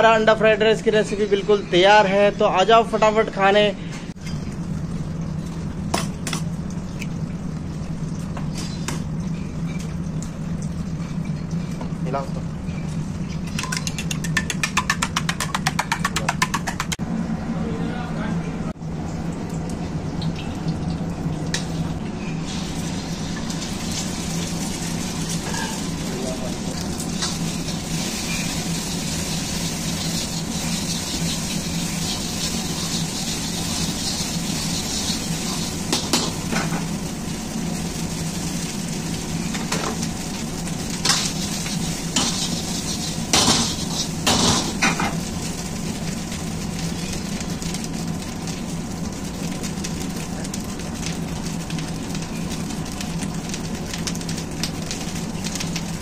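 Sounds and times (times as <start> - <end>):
oil and eggs sizzling: 0.0 - 17.0, 18.7 - 56.0
ladle scraping wok: 41.0 - 45.0.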